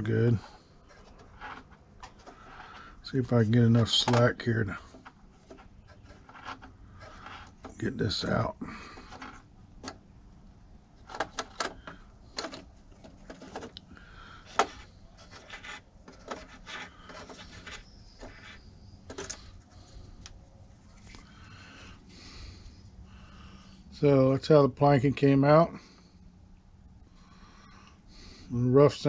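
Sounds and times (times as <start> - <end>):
hands rubbing wood: 0.0 - 4.2, 4.8 - 7.8, 14.4 - 19.6.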